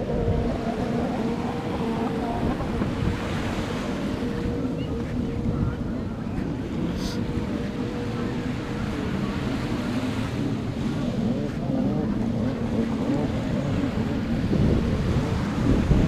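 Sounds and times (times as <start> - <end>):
small surf: 0.0 - 16.0
steady engine hum: 0.0 - 16.0
wind rumbling on microphone: 0.0 - 16.0.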